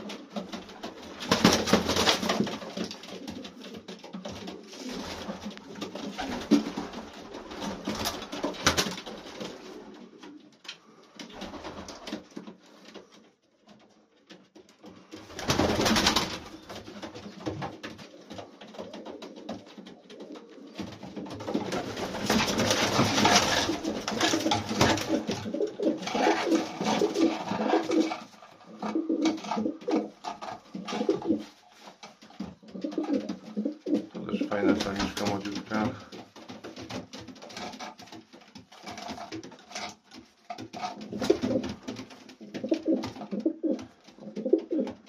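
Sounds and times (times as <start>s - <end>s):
pigeons cooing: 17.4s - 21.8s, 23.2s - 31.6s, 32.6s - 35.0s, 42.4s - 45.0s.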